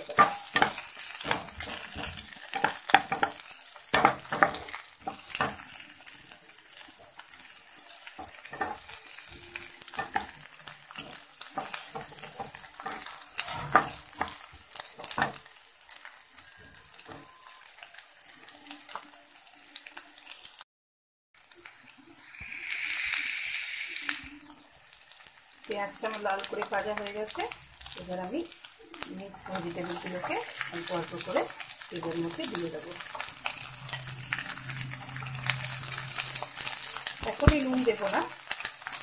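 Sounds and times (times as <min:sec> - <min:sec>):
wooden spatula scraping a pan: 0:00.0 - 0:05.8, 0:07.8 - 0:15.4, 0:26.1 - 0:38.6
onion sizzling in oil: 0:00.0 - 0:20.6, 0:21.4 - 0:39.0.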